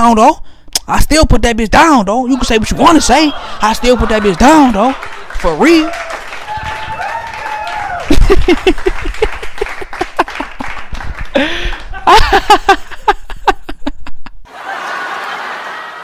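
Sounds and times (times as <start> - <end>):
man laughing into microphone: 2.3 - 5.8, 7.9 - 15.8
crowd noise: 2.3 - 12.2, 14.5 - 16.0.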